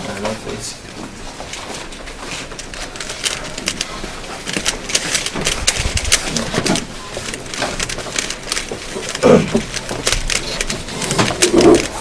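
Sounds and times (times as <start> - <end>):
puzzle cube clicking: 2.5 - 12.0.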